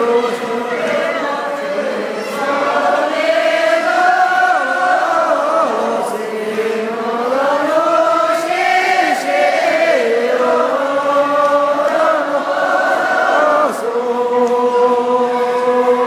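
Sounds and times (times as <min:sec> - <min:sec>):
women singing in unison: 0:00.0 - 0:16.0.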